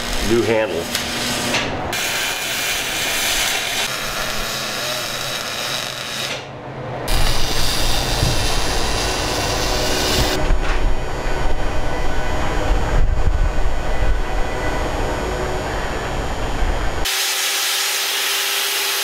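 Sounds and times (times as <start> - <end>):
welding arc hiss and crackle: 0.0 - 6.5, 7.1 - 10.4
loud noise with low rumble: 0.0 - 17.2.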